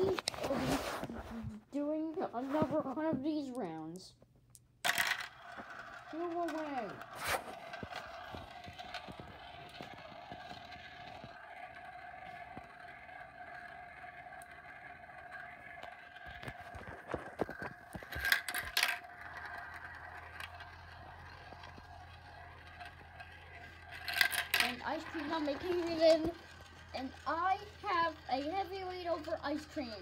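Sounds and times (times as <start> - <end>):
marbles clicking and clattering: 4.5 - 30.0
marbles rolling in plastic bowls: 4.8 - 30.0.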